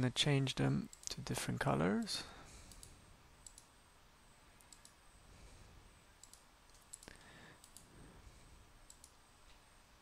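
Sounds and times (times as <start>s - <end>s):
low room hiss: 0.0s - 10.0s
computer mouse clicks: 2.6s - 3.7s, 4.6s - 5.0s, 6.2s - 7.9s, 8.8s - 9.6s.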